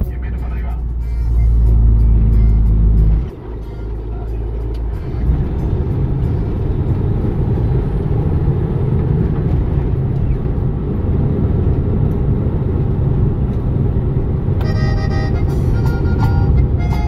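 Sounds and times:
melodic music: 0:00.0 - 0:07.1, 0:14.6 - 0:17.0
truck engine and road rumble: 0:00.0 - 0:17.0.

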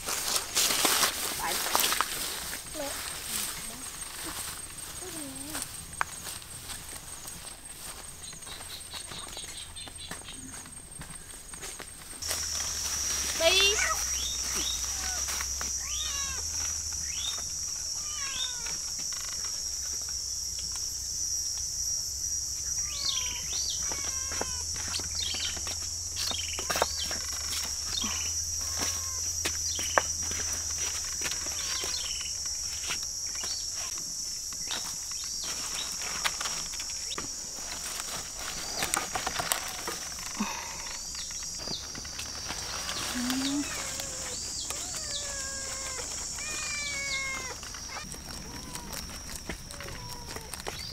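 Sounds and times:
birds chirping: 0:01.4 - 0:19.6, 0:22.6 - 0:30.4, 0:31.5 - 0:32.5, 0:40.1 - 0:50.9
high-pitched insect drone: 0:11.7 - 0:50.9.

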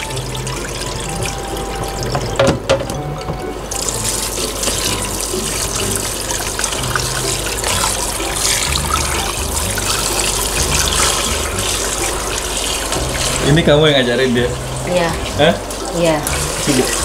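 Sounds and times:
hands rinsing squid: 0:00.0 - 0:17.0
tap running into tub: 0:00.0 - 0:17.0.

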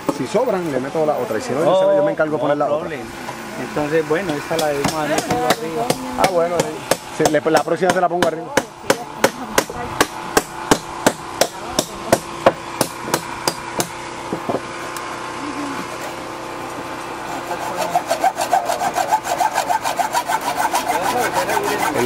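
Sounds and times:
hacksaw sawing bamboo: 0:04.2 - 0:14.0, 0:16.9 - 0:22.0.

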